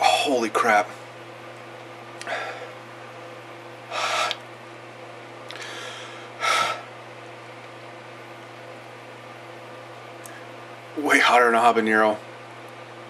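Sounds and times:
man breathing hard: 2.2 - 2.8, 3.9 - 4.4, 5.5 - 6.9.

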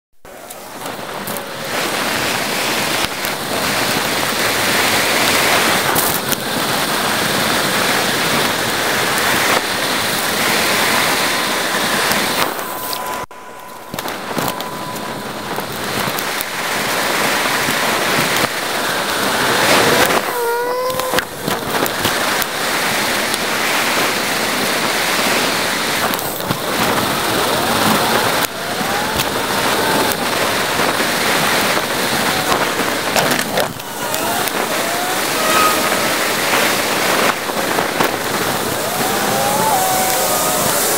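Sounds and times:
wind and road noise: 0.2 - 40.9
gliding chirps: 10.5 - 18.3, 33.7 - 39.9.

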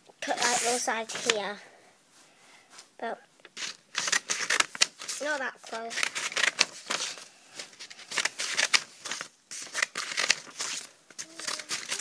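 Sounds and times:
paper rustling: 0.2 - 1.5, 3.5 - 12.0
scissors snipping paper: 3.6 - 7.1, 7.9 - 12.0.

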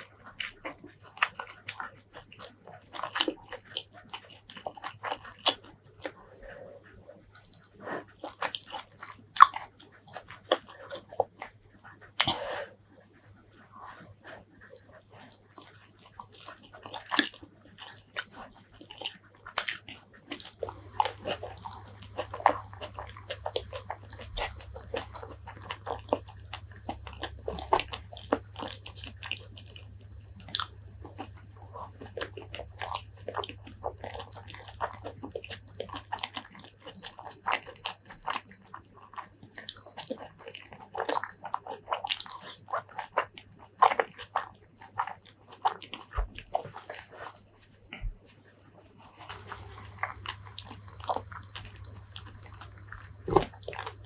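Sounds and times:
wet chewing: 0.0 - 54.0
mouth and lip clicks: 49.2 - 54.0.

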